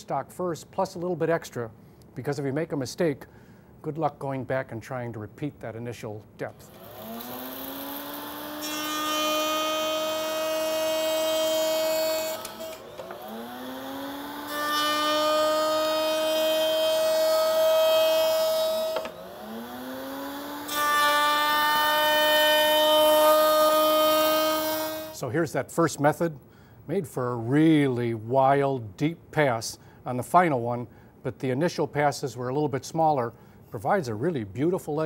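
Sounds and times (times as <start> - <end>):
router bit cutting wood: 6.6 - 25.2
router whine: 6.6 - 25.2.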